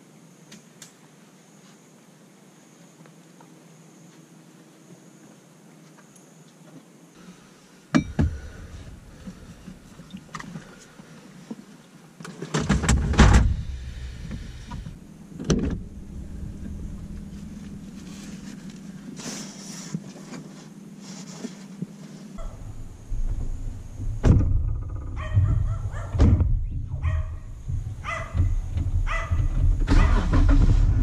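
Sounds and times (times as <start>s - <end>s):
steady low hum: 7.1s - 12.2s, 12.8s - 29.9s
scraping: 15.8s - 24.2s.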